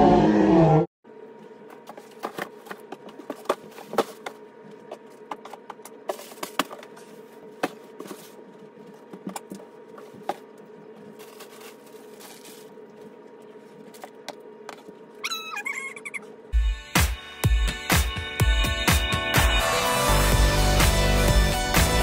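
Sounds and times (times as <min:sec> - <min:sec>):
faint steady hum: 0:01.1 - 0:16.6
wavering high squeak: 0:15.2 - 0:16.3.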